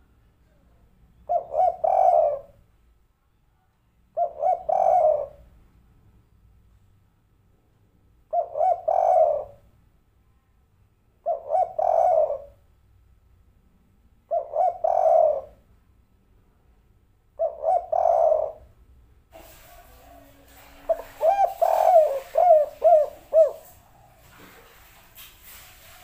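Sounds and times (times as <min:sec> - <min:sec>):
dove cooing: 0:01.2 - 0:02.6, 0:04.2 - 0:05.5, 0:08.3 - 0:09.7, 0:11.2 - 0:12.6, 0:14.3 - 0:15.6, 0:17.4 - 0:18.7, 0:19.4 - 0:26.0.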